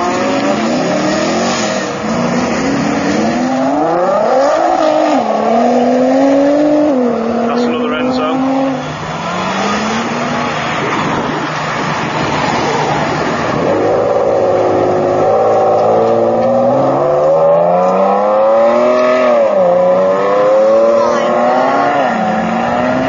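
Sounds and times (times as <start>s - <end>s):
car engine accelerating hard: 0.0s - 23.0s.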